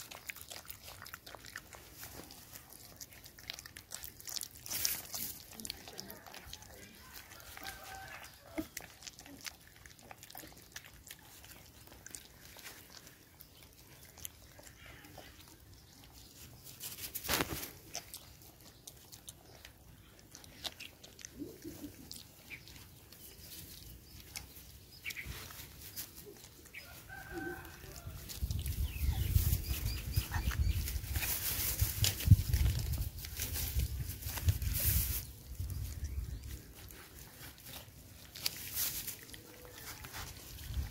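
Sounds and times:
puppies chewing and lapping: 0.0 - 40.9.

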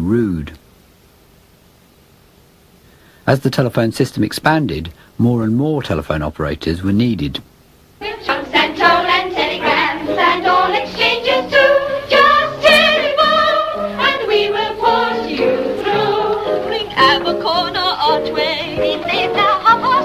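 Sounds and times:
musical accompaniment: 8.0 - 20.0
women singing together: 8.0 - 20.0.

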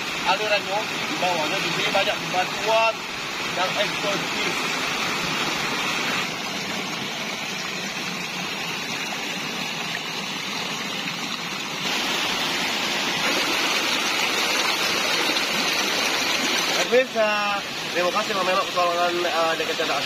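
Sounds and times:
stream splashing over stones: 0.0 - 20.0.

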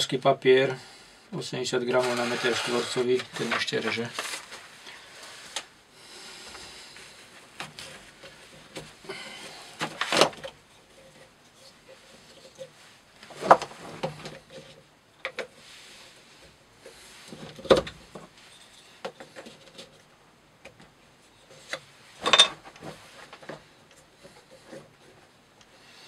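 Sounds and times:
rope rustling: 1.9 - 5.7.

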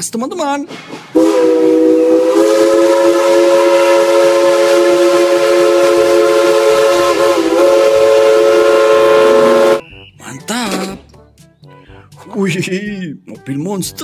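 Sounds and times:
steam locomotive chime whistle: 1.2 - 10.5.

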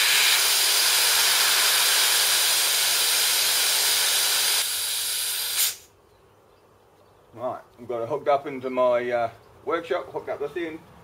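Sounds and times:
compressed air hissing: 0.0 - 5.9.

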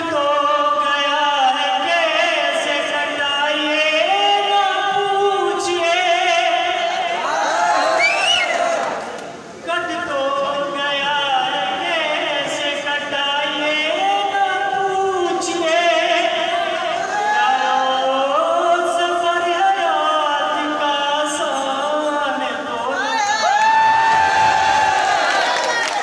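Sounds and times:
man singing unaccompanied: 0.0 - 8.0, 9.5 - 23.1.

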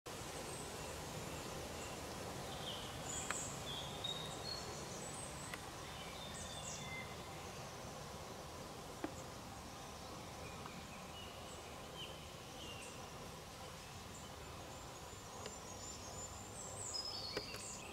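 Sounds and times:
distant birds chirping: 0.2 - 17.9
faint sharp clicks: 3.2 - 3.5, 5.4 - 5.7, 15.4 - 15.6, 17.3 - 17.8.

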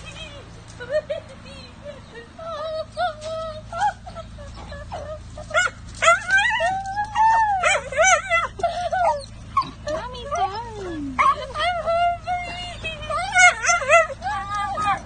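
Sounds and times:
dog whining: 3.0 - 15.0
dog yipping and barking: 3.8 - 11.9, 13.1 - 15.0.

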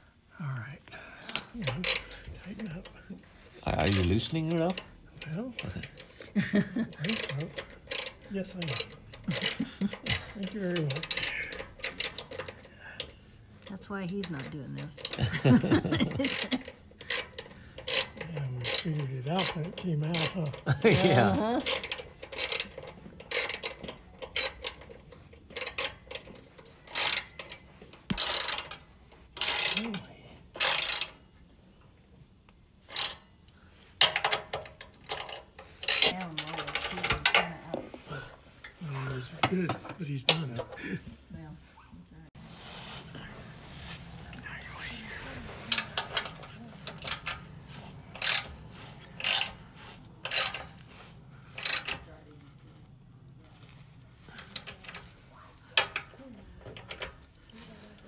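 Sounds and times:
socket ratchet clicking: 1.3 - 2.4, 3.8 - 13.1, 15.0 - 31.2, 32.8 - 37.5, 45.7 - 49.6, 50.2 - 50.8, 51.5 - 52.0.

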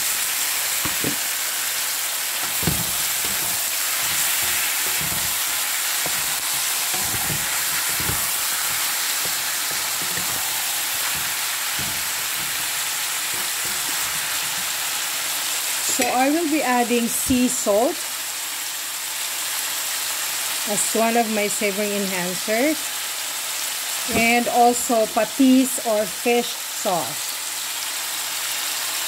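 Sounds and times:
chicken sizzling in hot oil: 0.0 - 29.0
wooden spatula knocking against pan: 0.8 - 1.2, 2.4 - 14.9.

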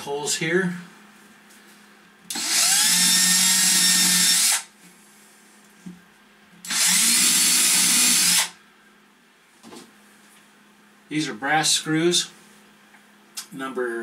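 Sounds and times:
cordless drill drilling into wood: 2.3 - 4.7, 6.7 - 8.6.

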